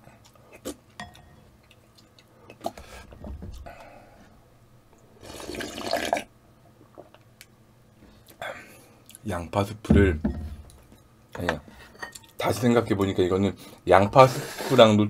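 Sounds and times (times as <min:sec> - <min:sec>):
person slurping broth: 0:05.2 - 0:06.2.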